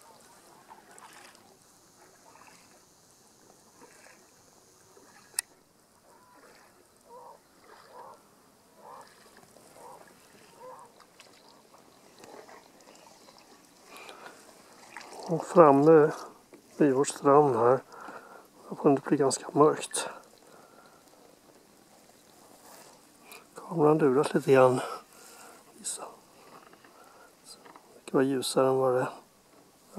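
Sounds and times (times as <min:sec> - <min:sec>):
paddles splashing in water: 0:00.0 - 0:23.6, 0:24.2 - 0:28.0.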